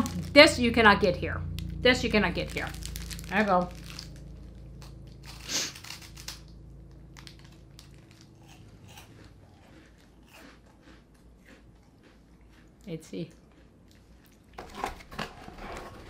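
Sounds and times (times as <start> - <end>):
faint chewing crunches: 2.5 - 14.6
bite into crunchy snack: 2.7 - 14.6.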